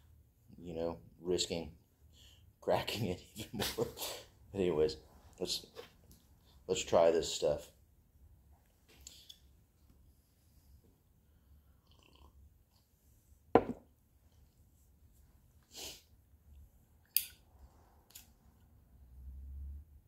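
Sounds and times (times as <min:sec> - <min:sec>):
thump: 0:13.6 - 0:13.8.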